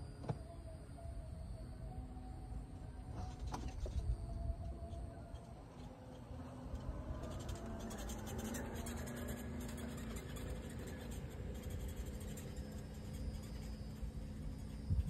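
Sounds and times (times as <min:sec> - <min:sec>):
faint steady hum: 0:00.0 - 0:15.0
wind on microphone: 0:14.6 - 0:15.0.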